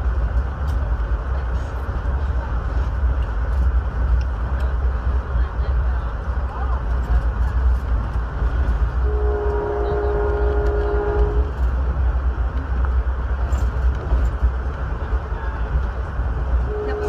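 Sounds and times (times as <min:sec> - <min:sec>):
train wheels rumbling on rails: 0:00.0 - 0:17.0
locomotive horn blast: 0:09.0 - 0:11.6, 0:16.6 - 0:17.0.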